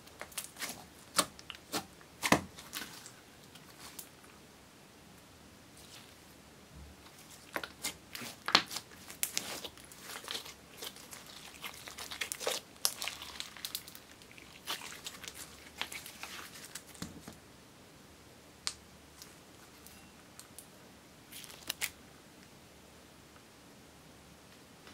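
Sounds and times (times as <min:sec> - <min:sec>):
slime crackling and popping: 0:07.1 - 0:17.0, 0:21.3 - 0:21.9.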